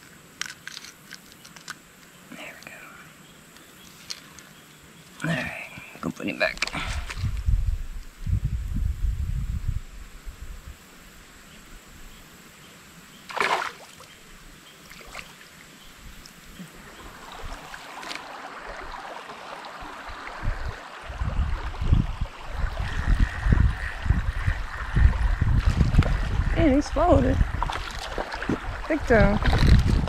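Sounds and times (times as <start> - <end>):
creek water flowing: 10.7 - 30.0
water splash: 13.3 - 14.1, 25.5 - 30.0.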